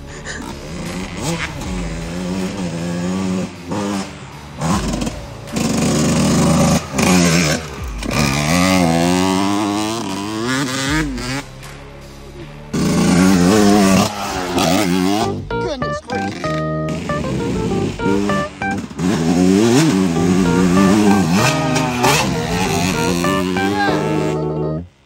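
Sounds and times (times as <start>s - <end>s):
dirt bike engine revving: 0.0s - 11.6s, 12.7s - 25.0s.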